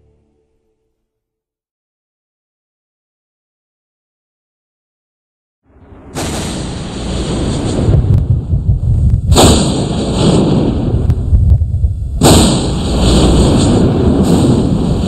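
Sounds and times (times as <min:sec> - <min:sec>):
heavy booms: 0:05.7 - 0:15.0
steady deep rumble: 0:05.7 - 0:15.0.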